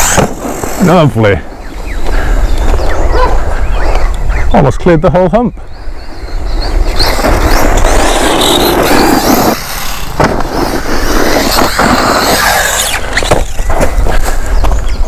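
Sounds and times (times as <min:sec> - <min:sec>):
tyres churning dirt and gravel: 0:00.0 - 0:01.4.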